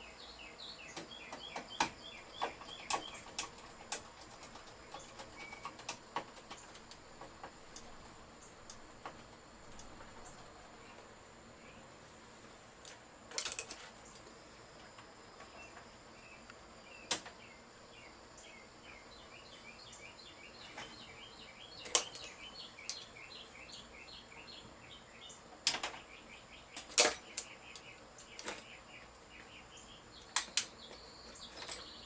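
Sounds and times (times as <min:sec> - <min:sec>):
hand tool clicking on wiring: 0:21.8 - 0:23.1, 0:30.2 - 0:30.8.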